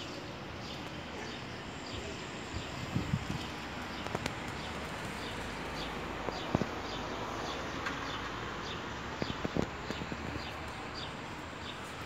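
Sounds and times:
wind rustling leaves: 1.6s - 7.0s.

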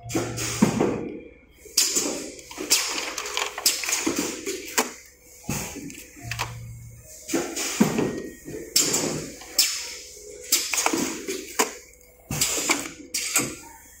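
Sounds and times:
plastic trays crackling and clattering: 1.8s - 6.6s, 7.8s - 13.6s.

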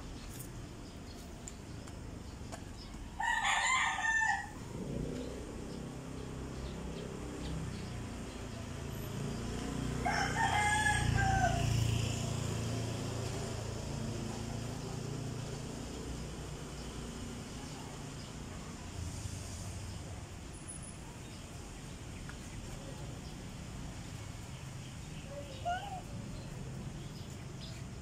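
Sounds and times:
rooster crowing: 3.2s - 4.6s, 10.0s - 11.9s.

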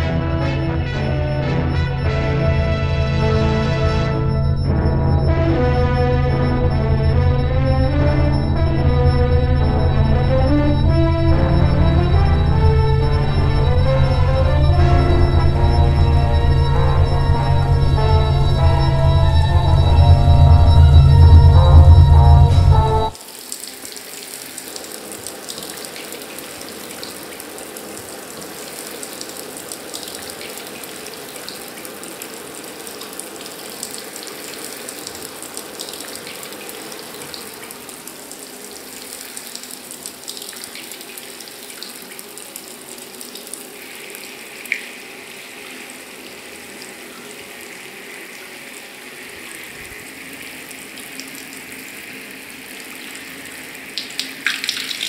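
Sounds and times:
shower running: 20.2s - 55.0s.

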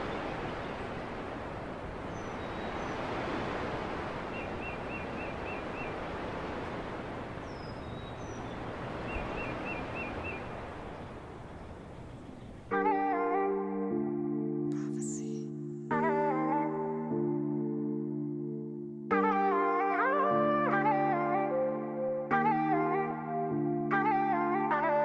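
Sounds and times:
steady rushing noise: 0.0s - 12.7s
small bird calling: 4.3s - 6.1s, 7.4s - 12.7s.

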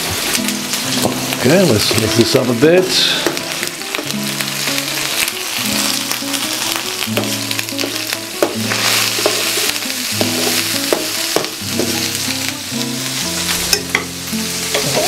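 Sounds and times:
food sizzling in oil: 0.0s - 15.0s
quiet background music: 0.1s - 15.0s
metal spoon scraping a pan: 8.7s - 11.0s.

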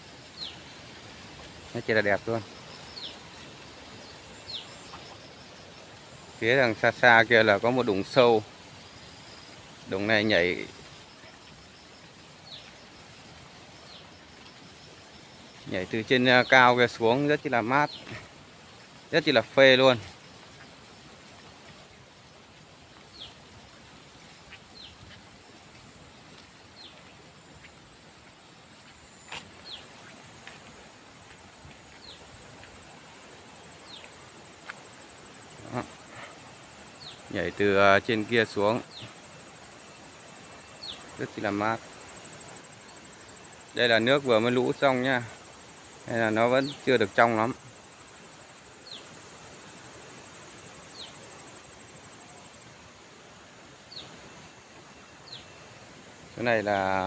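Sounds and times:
faint insect whine: 0.0s - 57.0s
stream flowing: 0.0s - 57.0s
bird chirping: 0.3s - 0.9s, 1.7s - 13.0s, 28.8s - 30.6s.

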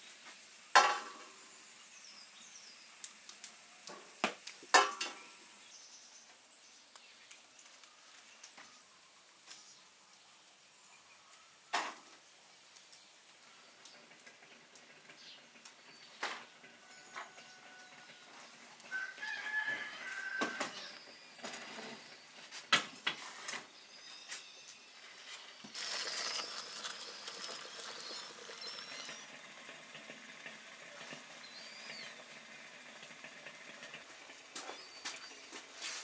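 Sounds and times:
metal cookware clinking: 4.7s - 5.2s
water pouring into pot: 24.9s - 36.0s.

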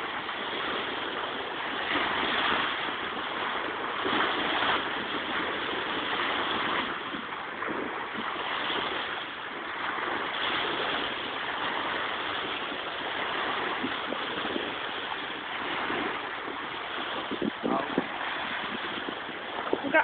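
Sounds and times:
waves washing on sandy beach: 0.0s - 20.0s.

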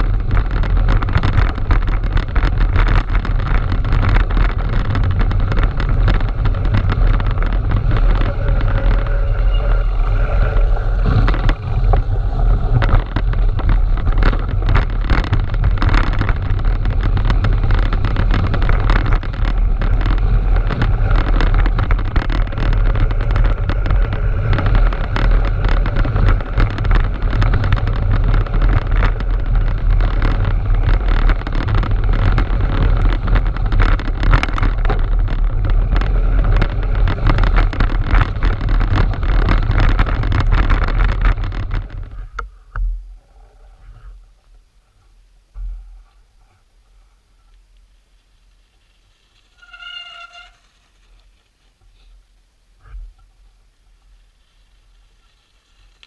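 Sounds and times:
tyre noise on snow: 0.0s - 42.6s
bike knocks and rattles: 0.0s - 43.0s
wind buffeting microphone: 0.0s - 43.1s.

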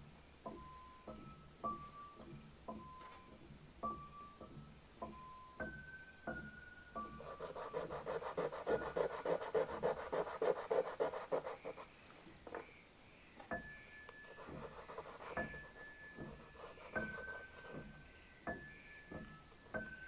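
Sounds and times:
soft piano notes: 0.0s - 20.0s
pastel scratching on paper: 7.2s - 11.9s, 14.3s - 17.8s.

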